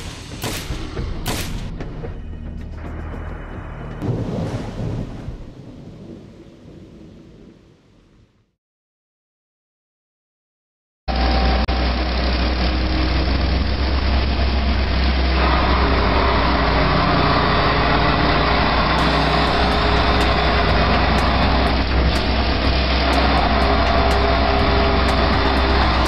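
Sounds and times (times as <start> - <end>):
drill rig mechanical drone: 11.1 - 26.0.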